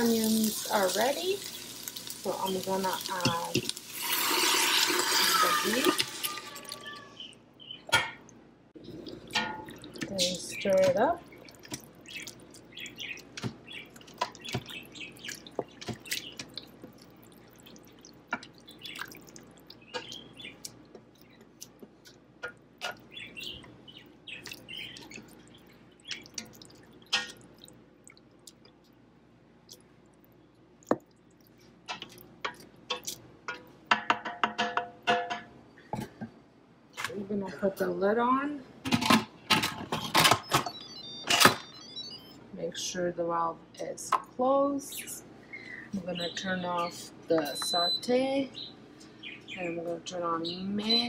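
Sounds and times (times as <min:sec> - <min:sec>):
beef and onions sizzling: 0:00.0 - 0:06.6.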